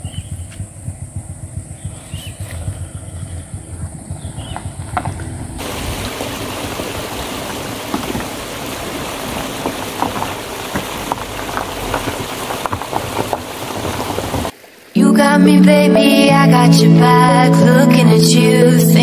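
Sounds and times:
hiss of water: 5.6s - 15.0s.

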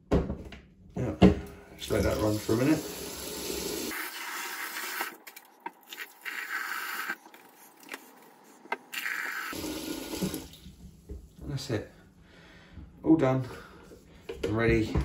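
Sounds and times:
tap water running into bucket: 1.8s - 7.2s, 8.8s - 10.8s.

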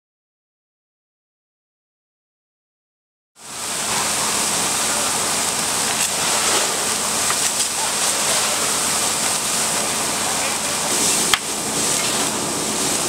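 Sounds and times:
flames rushing and hissing: 3.4s - 13.0s
fire crackles and pops: 3.6s - 13.0s.

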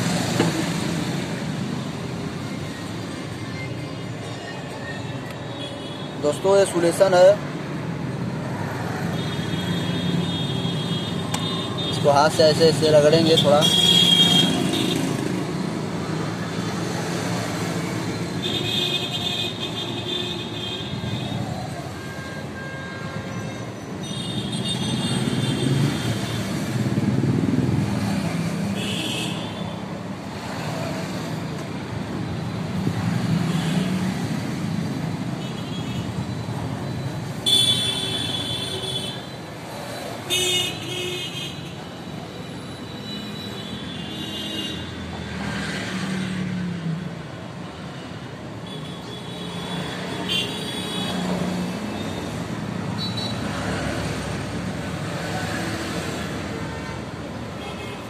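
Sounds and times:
road traffic: 0.0s - 58.0s
vehicle horns honking: 37.4s - 39.3s, 40.2s - 41.8s.

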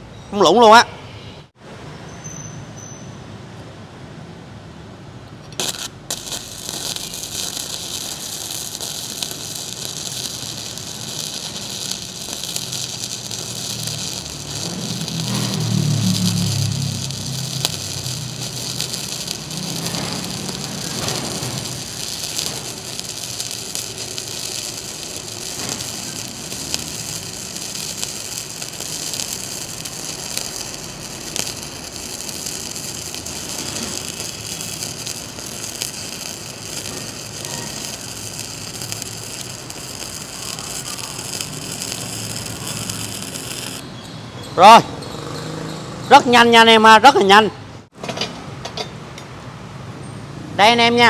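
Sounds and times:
welding arc sizzling and crackling: 5.4s - 43.9s.

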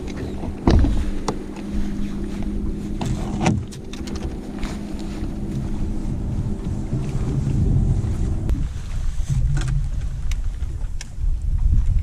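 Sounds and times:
wind rumble on microphone: 0.0s - 12.0s
knocks on boat deck: 0.6s - 1.0s.

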